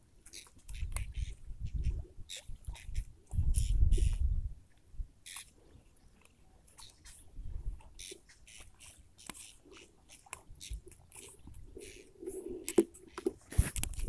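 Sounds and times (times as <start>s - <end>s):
line rustling and crackling: 8.8s - 14.0s.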